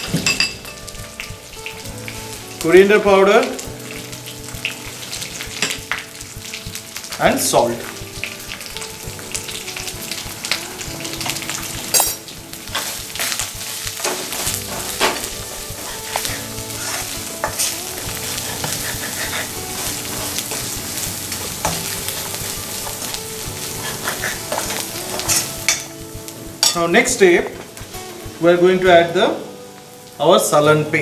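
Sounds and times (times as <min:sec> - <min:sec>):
spices sizzling in hot oil: 0:00.0 - 0:31.0
ladle scraping pan: 0:14.0 - 0:20.8.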